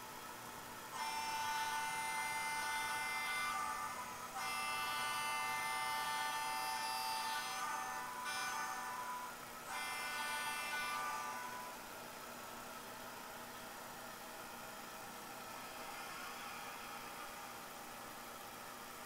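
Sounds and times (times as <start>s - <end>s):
high thin model train horn: 0.9s - 11.8s.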